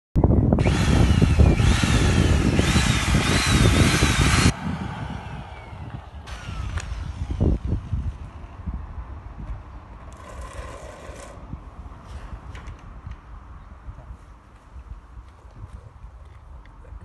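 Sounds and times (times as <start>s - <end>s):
electric drill motor whine: 0.6s - 8.3s.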